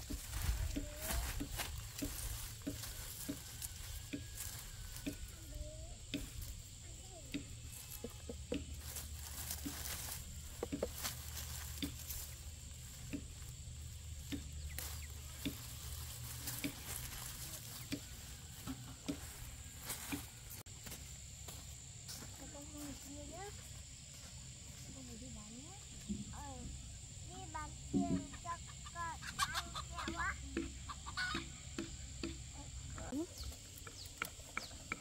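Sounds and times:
vines and leaves rustling: 0.0 - 20.7.

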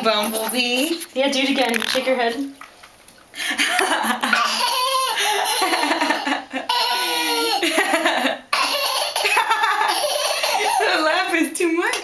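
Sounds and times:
toddler laughing: 4.2 - 11.0.

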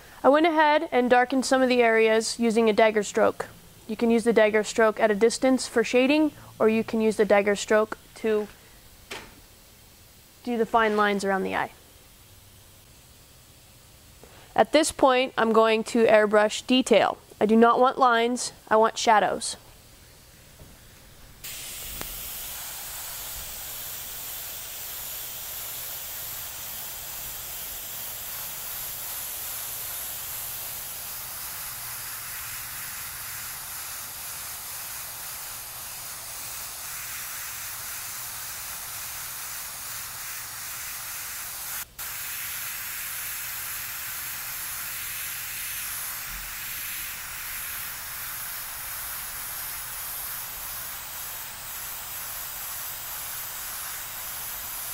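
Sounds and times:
airbrush hissing: 19.8 - 54.9.

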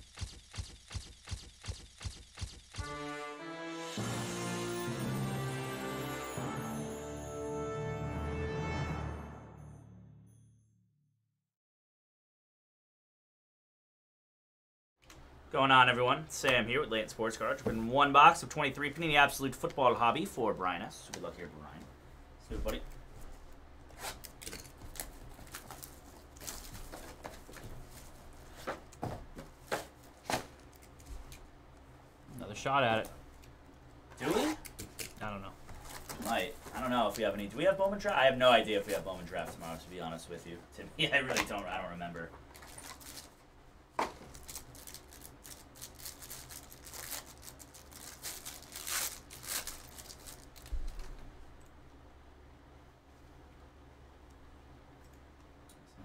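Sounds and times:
plastic shrink wrap crackling: 42.6 - 43.4, 44.2 - 51.2.

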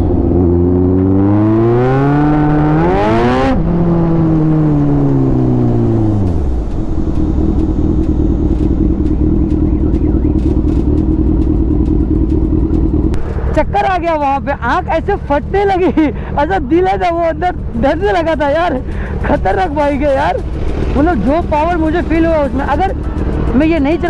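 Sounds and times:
motorcycle engine accelerating: 0.0 - 24.0
motorcycle engine idling: 5.0 - 24.0.

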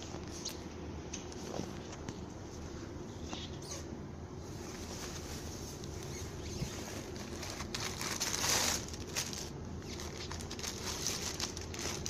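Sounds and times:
steady low hum: 0.0 - 12.0
packaging rustling and crinkling: 4.6 - 12.0.

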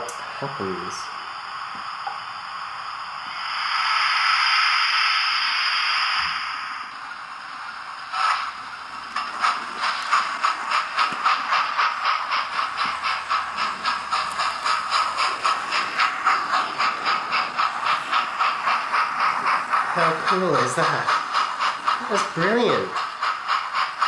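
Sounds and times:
model steam locomotive chuffing: 0.0 - 1.4, 2.0 - 24.0.

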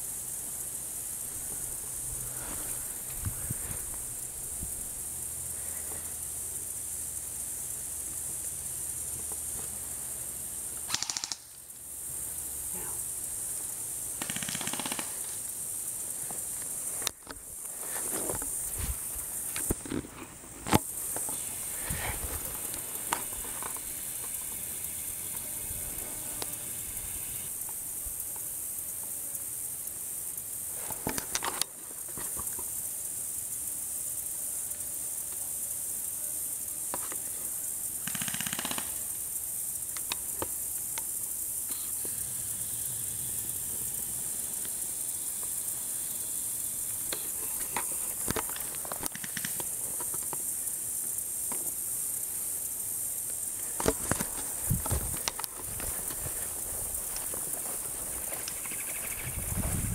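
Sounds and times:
grass rustling: 0.0 - 10.2, 14.7 - 28.8, 39.8 - 59.9
insect chorus drone: 0.0 - 59.9.

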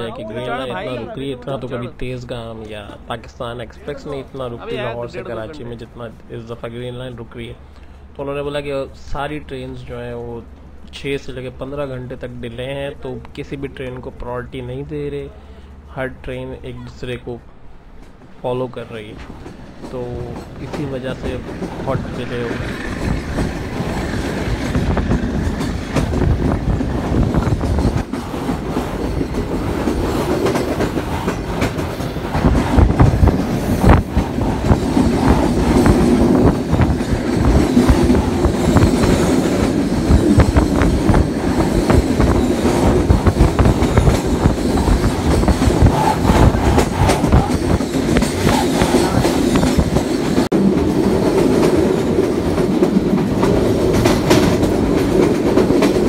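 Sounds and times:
train rumbling along track: 0.0 - 56.0
wheels clattering over rail joints: 19.2 - 56.0.

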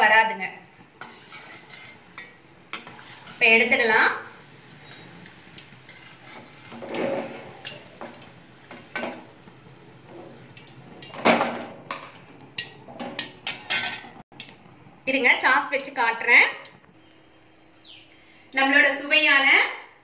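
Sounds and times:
metal skimmer scraping a pan: 1.0 - 3.8, 4.8 - 9.3.

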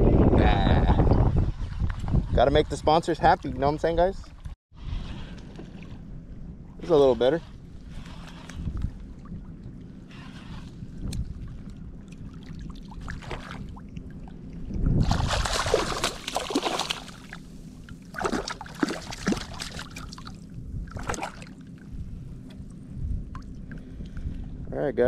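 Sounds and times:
low background rumble: 2.4 - 25.0
fish thrashing and splashing: 15.0 - 21.6.

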